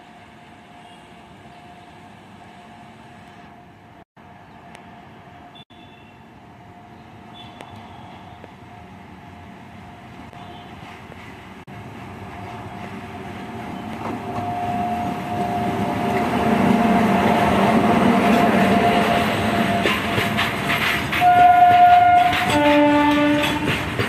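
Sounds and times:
train horn: 0:21.1 - 0:23.8.

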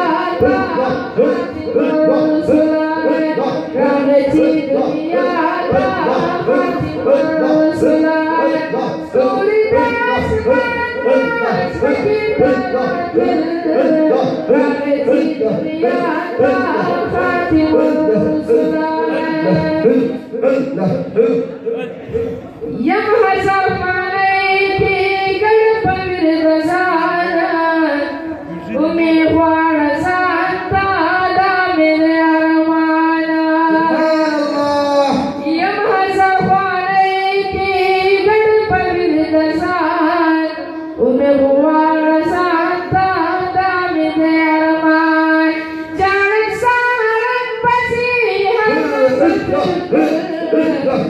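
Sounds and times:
young man singing unaccompanied: 0:00.0 - 0:24.1, 0:46.0 - 0:51.0.

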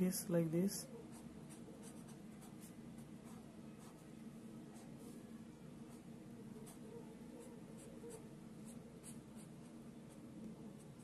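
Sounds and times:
low steady hum: 0:00.0 - 0:11.0
pencil scratching on paper: 0:01.1 - 0:04.1, 0:05.9 - 0:11.0.

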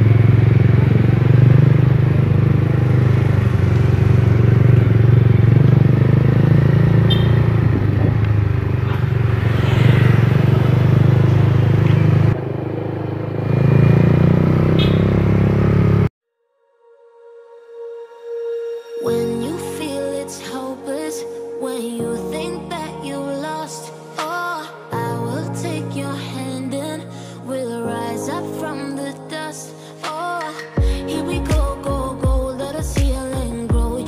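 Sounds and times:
motorcycle engine running: 0:00.0 - 0:16.1.

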